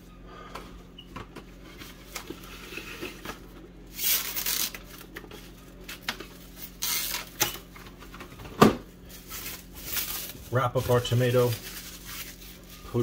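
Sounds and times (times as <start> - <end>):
plastic crinkling and rustling: 1.8 - 8.1, 8.9 - 13.0.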